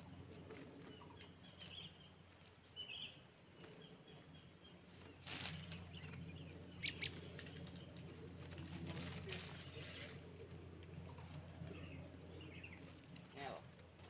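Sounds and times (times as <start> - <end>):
faint bird chirps: 0.0 - 8.3
steady low hum: 0.0 - 14.0.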